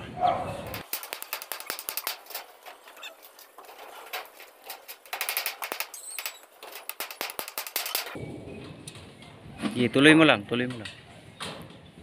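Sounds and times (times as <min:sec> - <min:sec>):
hammer tapping on metal: 0:00.7 - 0:08.2.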